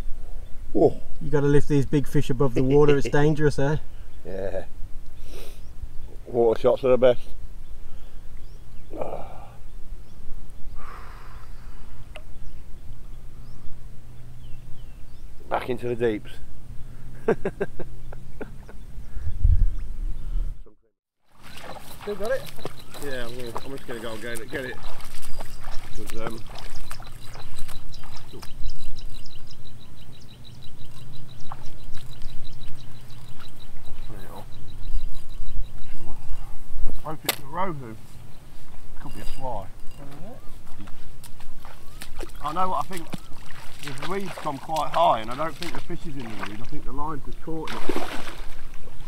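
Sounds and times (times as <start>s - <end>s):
wind rumble on microphone: 18.3s - 20.6s
soft splash of water: 21.3s - 23.0s, 43.0s - 46.8s, 47.6s - 49.0s
faint bird chirps: 21.4s - 37.1s, 37.8s - 44.5s.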